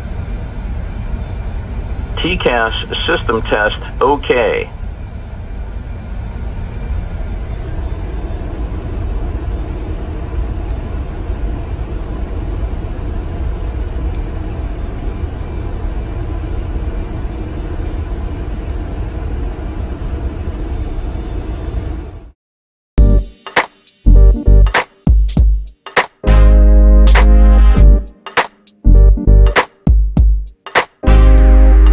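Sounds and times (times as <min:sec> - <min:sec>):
steady low rumble: 0:00.0 - 0:20.7, 0:26.3 - 0:28.1, 0:28.9 - 0:30.4.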